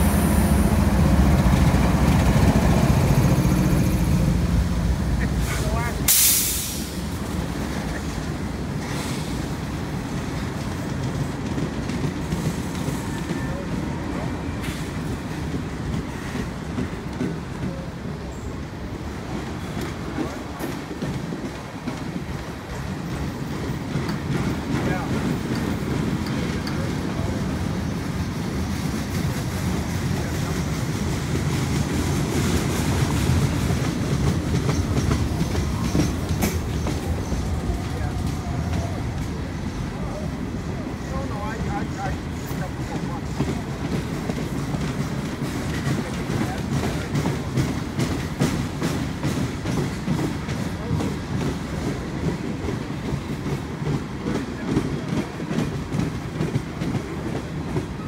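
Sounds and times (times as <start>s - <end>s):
train wheels rumbling on rails: 0.0s - 58.0s
wheels clicking over rail joints: 31.3s - 40.1s.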